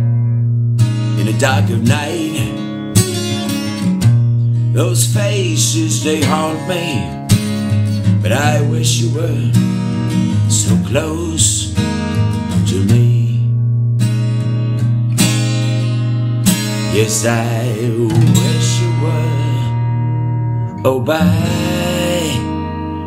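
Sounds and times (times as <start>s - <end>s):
acoustic guitar strumming: 0.0s - 23.0s
man singing: 1.1s - 2.8s, 4.6s - 7.3s, 8.1s - 9.6s, 10.3s - 13.5s, 16.8s - 19.9s, 20.8s - 22.6s.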